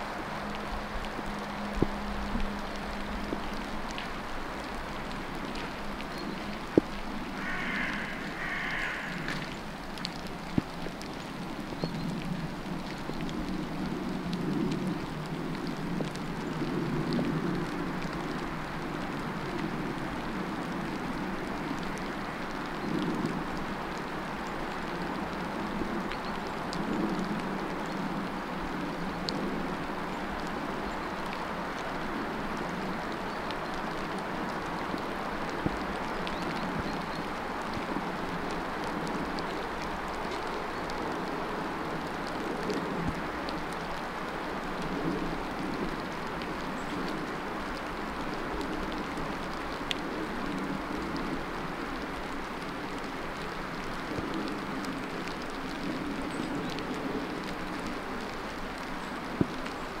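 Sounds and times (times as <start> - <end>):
steady rain falling: 0.0 - 60.0.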